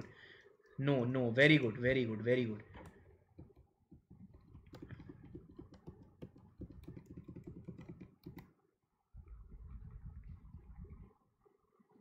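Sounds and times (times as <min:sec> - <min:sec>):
typing on computer keyboard: 0:02.8 - 0:08.6.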